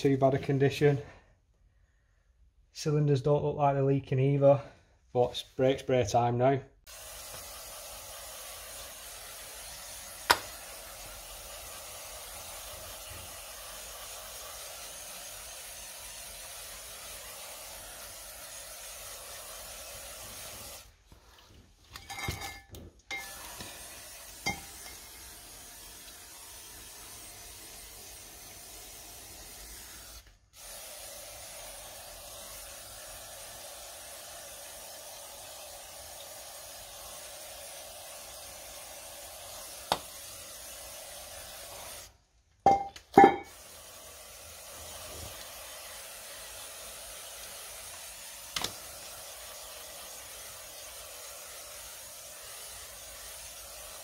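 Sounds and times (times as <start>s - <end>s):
aerosol spray hissing: 6.8s - 21.0s, 23.1s - 42.2s, 43.2s - 54.0s.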